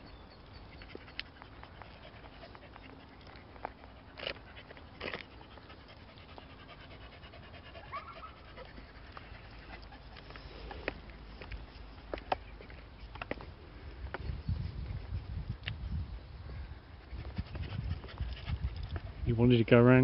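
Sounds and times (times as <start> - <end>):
dog panting: 0.6 - 12.9, 17.0 - 19.2.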